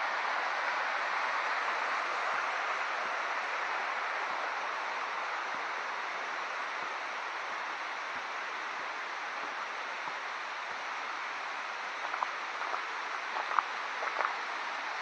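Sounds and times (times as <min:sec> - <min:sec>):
stream water rushing: 0:10.1 - 0:15.0.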